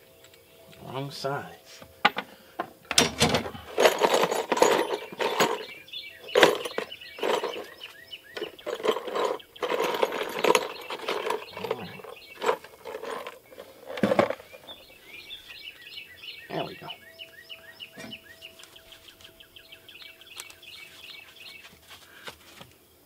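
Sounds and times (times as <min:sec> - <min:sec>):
screws rattling in plastic box: 0:03.0 - 0:14.8.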